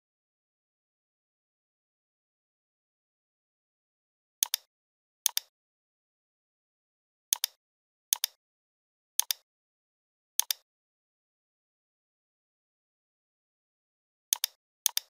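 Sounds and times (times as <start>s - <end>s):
computer mouse button clicking: 4.4s - 4.7s, 5.3s - 5.5s, 7.4s - 7.6s, 8.2s - 8.4s, 9.2s - 9.4s, 10.4s - 10.6s, 14.3s - 15.0s.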